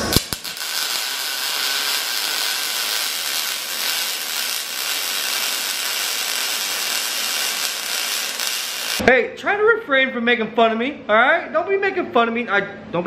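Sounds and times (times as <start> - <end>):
welding arc: 0.0 - 9.0.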